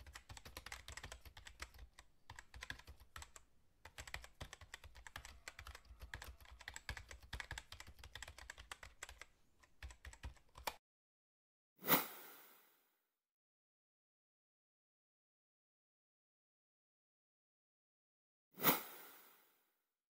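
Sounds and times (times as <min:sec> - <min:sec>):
keyboard typing clicks: 0:00.0 - 0:10.8.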